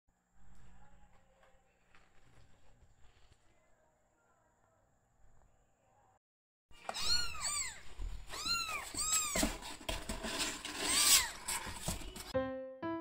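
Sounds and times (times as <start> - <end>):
kittens mewing: 6.8 - 9.6
scuffling in cardboard box: 8.2 - 12.3.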